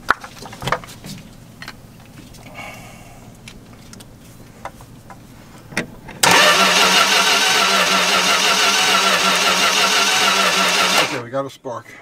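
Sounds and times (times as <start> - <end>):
starter motor cranking engine: 6.2 - 11.2.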